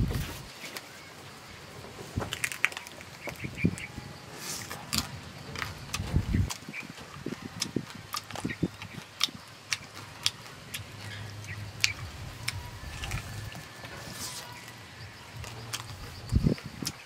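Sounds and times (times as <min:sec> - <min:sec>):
faint steady low hum: 0:00.0 - 0:17.0
wet chewing and lip-smacking: 0:04.6 - 0:14.8, 0:15.4 - 0:17.0.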